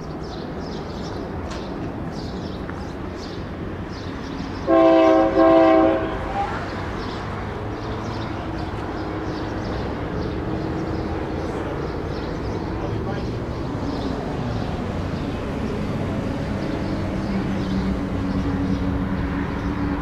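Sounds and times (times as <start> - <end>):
low locomotive rumble: 0.0 - 20.0
locomotive air horn blasts: 4.6 - 6.7.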